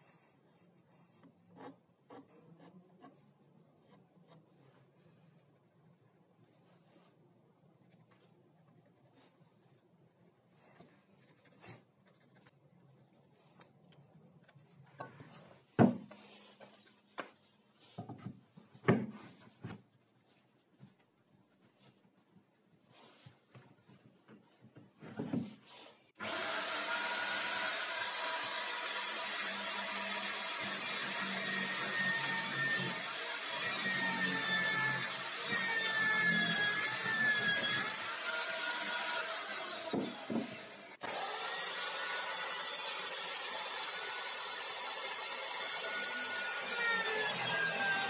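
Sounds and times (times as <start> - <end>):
pencil scratching on plywood: 0.0 - 5.0, 5.6 - 12.6
electric drill running: 26.2 - 48.0.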